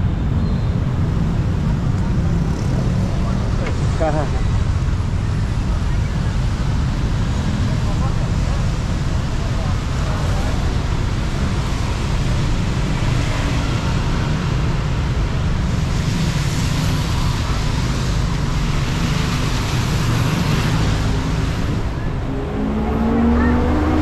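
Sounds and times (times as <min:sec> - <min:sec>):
tyres hissing on wet road: 0:06.6 - 0:22.1.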